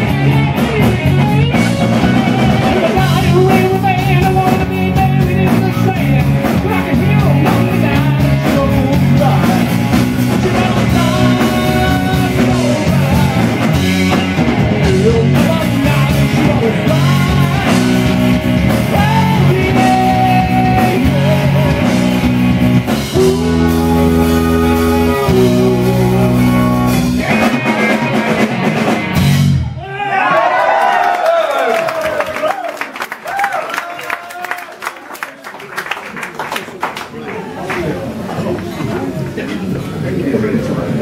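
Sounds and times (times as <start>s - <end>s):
electric guitar lead line: 0.0s - 29.8s
rock band playing: 0.0s - 30.2s.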